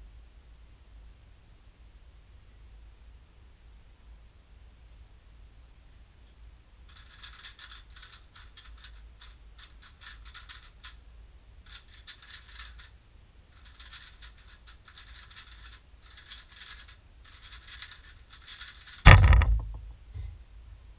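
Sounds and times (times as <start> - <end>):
puzzle cube clicking clatter: 6.9 - 11.0, 11.7 - 12.9, 13.6 - 19.7.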